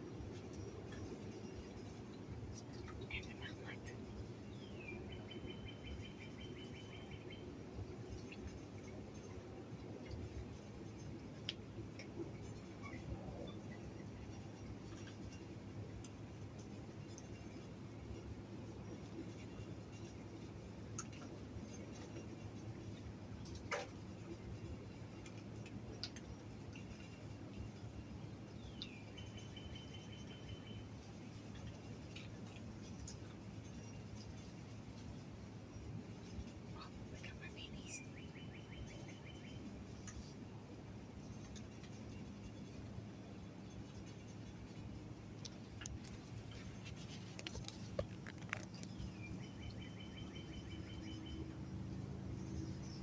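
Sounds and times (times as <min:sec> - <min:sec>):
low steady hum: 0:00.0 - 0:53.0
faint clicks: 0:11.4 - 0:13.1, 0:20.8 - 0:22.4, 0:25.2 - 0:27.7, 0:40.0 - 0:40.4, 0:45.4 - 0:49.8
raccoons crunching dry food: 0:45.4 - 0:49.1.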